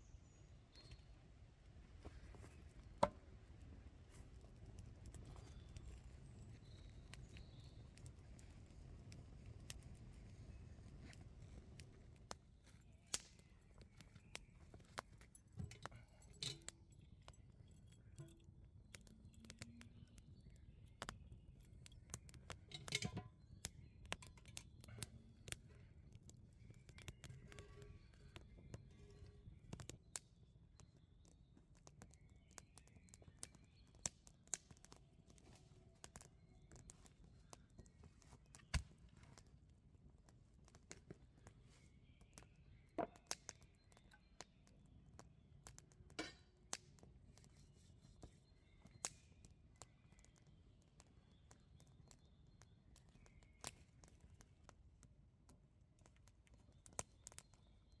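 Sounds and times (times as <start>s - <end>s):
faint bird chirps: 5.1s - 9.0s, 9.8s - 39.0s, 41.2s - 45.9s, 47.3s - 54.6s, 56.5s - 58.0s
knocks of wood and metal: 43.0s - 43.2s.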